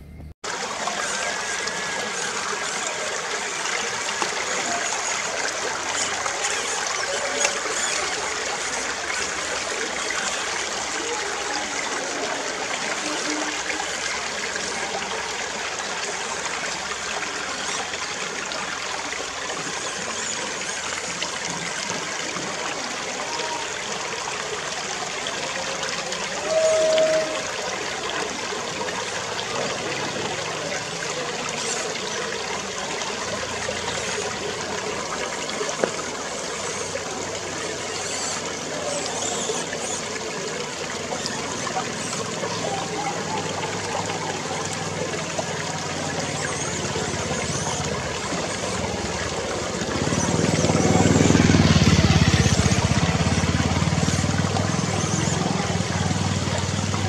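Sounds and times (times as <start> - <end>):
creek water running over stones: 0.4 - 57.0
brief steady tone: 26.4 - 27.6.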